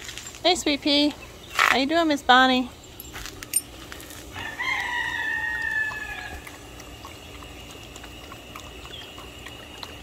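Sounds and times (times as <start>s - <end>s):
hose water running into bucket: 4.0s - 10.0s
rooster crowing: 4.3s - 6.4s.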